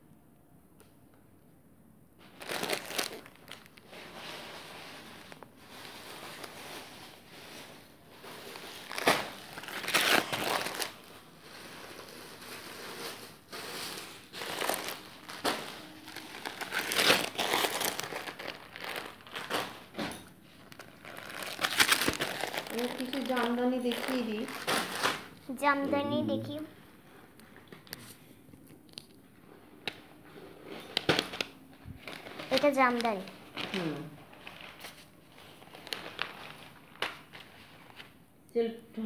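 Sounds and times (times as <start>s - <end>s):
plastic wrapping crinkling: 2.2s - 25.8s, 27.2s - 38.2s.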